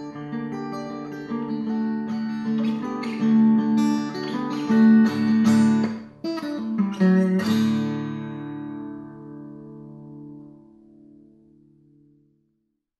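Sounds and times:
strummed acoustic guitar: 0:00.0 - 0:12.2.

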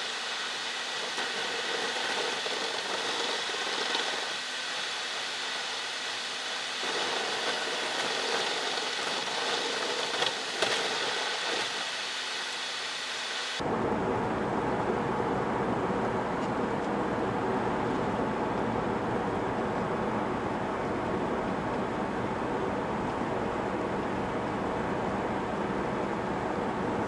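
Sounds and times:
low full rumble: 0:13.6 - 0:27.0.

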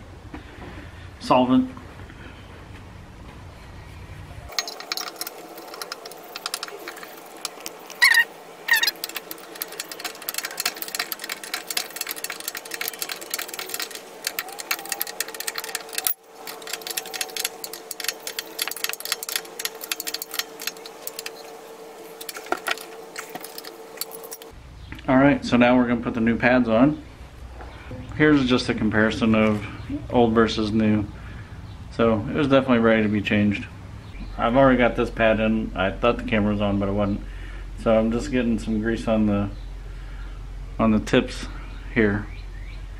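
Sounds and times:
steady hum: 0:00.0 - 0:42.1
ratchet wrench clicking: 0:04.5 - 0:21.5
metal clanks: 0:04.5 - 0:24.5.

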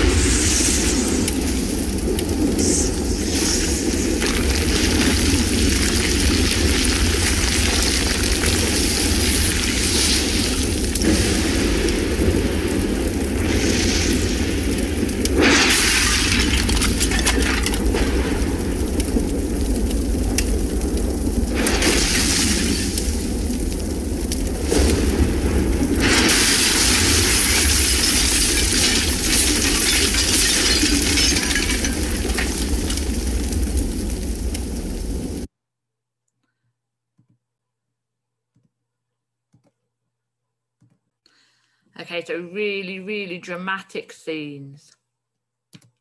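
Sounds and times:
fire crackling and debris falling: 0:00.0 - 0:35.5
loud eruption burst: 0:00.0 - 0:35.5.

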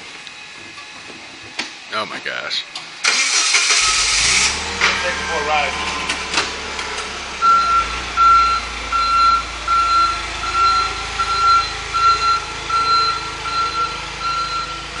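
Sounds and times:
forklift engine running: 0:02.7 - 0:15.0
reversing alarm beeping: 0:07.4 - 0:15.0.

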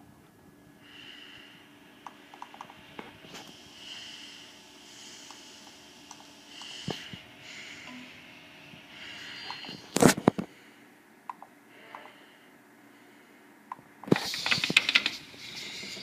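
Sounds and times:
soft hiss: 0:00.0 - 0:11.1.

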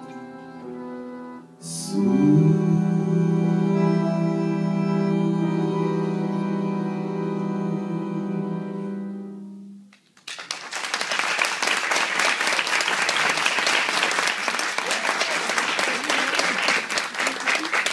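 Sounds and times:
tango ensemble chord: 0:00.0 - 0:10.0
audience applause: 0:10.2 - 0:17.9.

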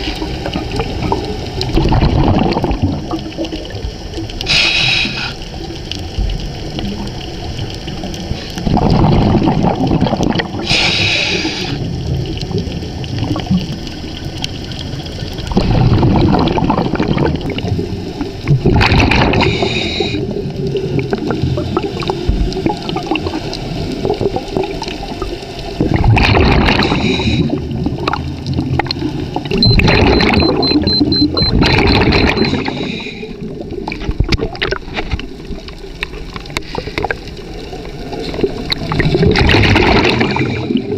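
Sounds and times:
gurgle of exhaled bubbles: 0:00.0 - 0:40.9
regulator hiss: 0:04.4 - 0:05.6, 0:10.6 - 0:11.9.

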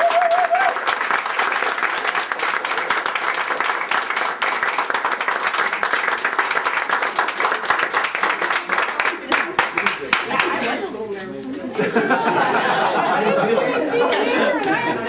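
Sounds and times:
small crowd applauding: 0:00.0 - 0:10.8.

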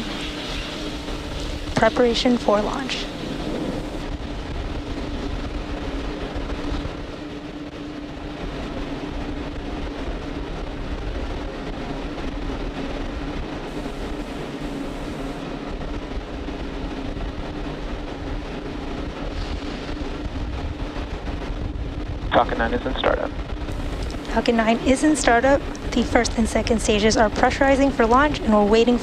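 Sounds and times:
rocket venting rushing noise: 0:00.0 - 0:07.0, 0:13.6 - 0:15.4
steady hum: 0:00.0 - 0:29.0.

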